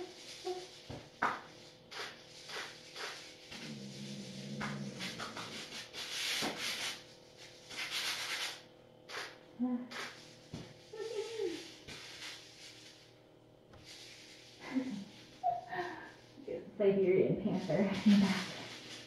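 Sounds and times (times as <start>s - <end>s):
hand scratching a blanket: 1.6s - 9.3s, 9.9s - 13.1s.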